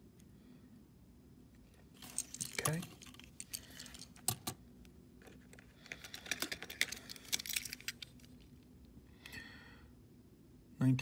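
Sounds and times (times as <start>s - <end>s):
toy trucks clicking and tapping: 2.1s - 4.6s, 5.5s - 8.1s.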